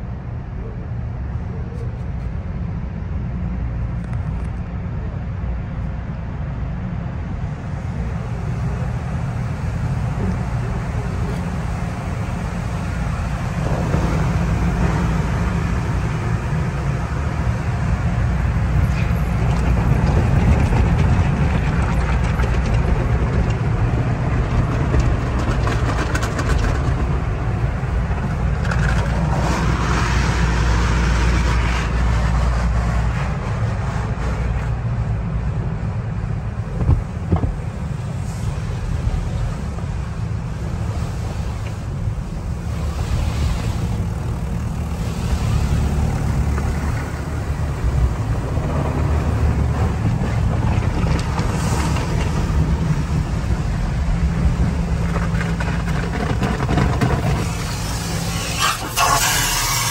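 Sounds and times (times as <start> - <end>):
car wash machinery rumble: 0.0 - 59.9
water spray: 57.4 - 59.9.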